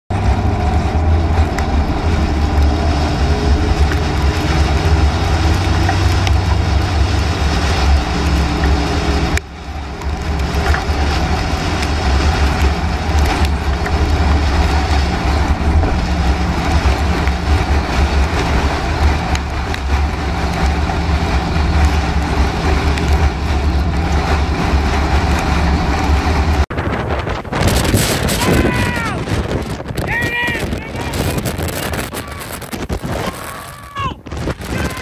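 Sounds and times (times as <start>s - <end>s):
road and wind noise in vehicle: 0.1s - 35.0s.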